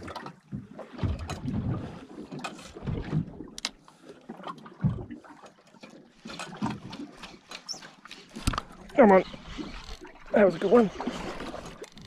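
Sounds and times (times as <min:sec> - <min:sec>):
water lapping against boat hull: 0:00.0 - 0:12.0.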